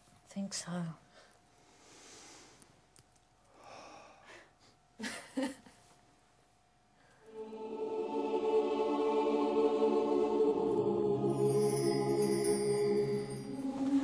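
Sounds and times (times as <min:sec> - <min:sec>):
choral music: 0:07.2 - 0:14.0.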